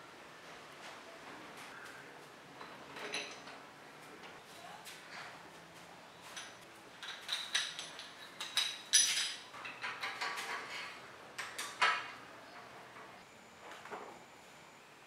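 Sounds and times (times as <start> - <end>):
metal bicycle parts clinking: 6.4 - 12.2.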